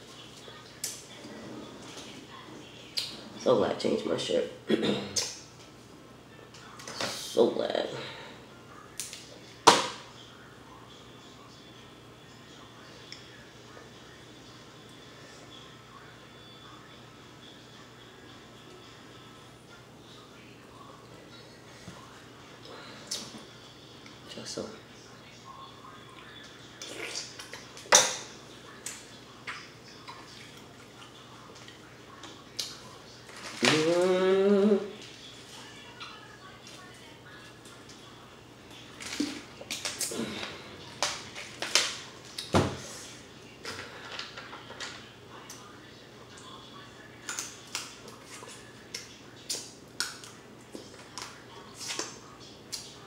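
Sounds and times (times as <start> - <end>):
wet eating smacks and clicks: 48.9 - 50.9.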